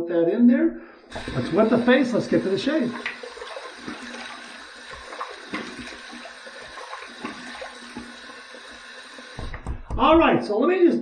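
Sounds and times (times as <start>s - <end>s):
water running into a sink: 1.1s - 9.8s.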